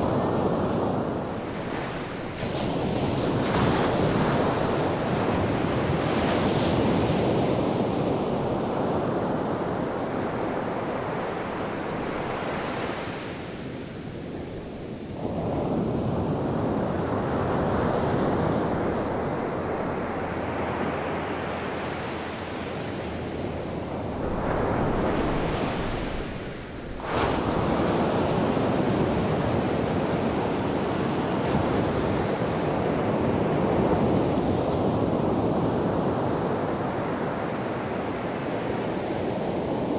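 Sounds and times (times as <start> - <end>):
waves breaking on a beach: 0.0 - 39.9.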